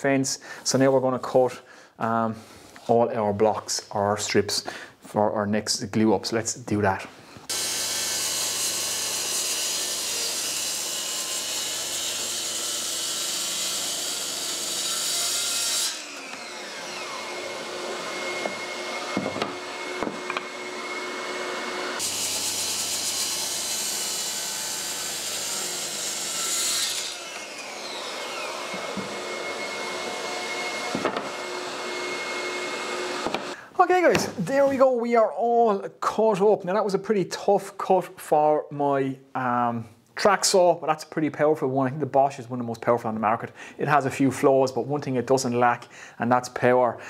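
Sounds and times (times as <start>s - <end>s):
track saw cutting wood: 7.5s - 33.6s
dust extractor running: 16.1s - 26.5s, 27.2s - 33.6s.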